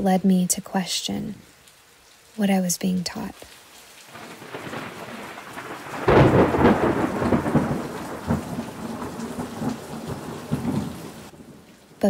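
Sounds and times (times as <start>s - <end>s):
steady rain: 0.0s - 12.0s
thunder rumbling: 4.1s - 11.6s.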